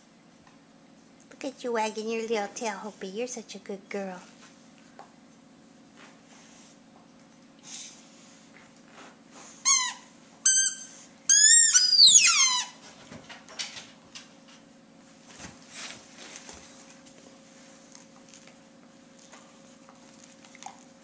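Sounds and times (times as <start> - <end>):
squeaky dog toy squeaks: 9.7 - 12.8.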